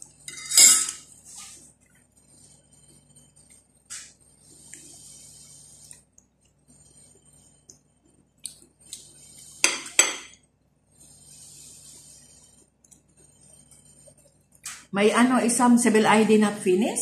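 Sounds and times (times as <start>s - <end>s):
fork clinking and scraping on plate: 0.3s - 1.1s.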